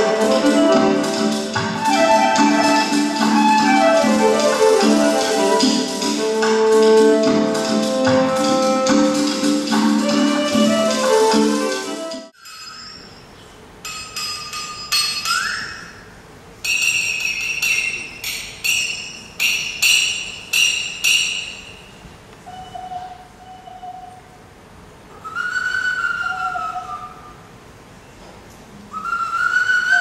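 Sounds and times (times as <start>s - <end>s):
hand whistle: 1.7s - 6.0s, 10.0s - 12.8s, 14.8s - 24.3s, 25.1s - 27.4s, 28.9s - 30.0s
metal percussion ringing: 12.4s - 24.0s.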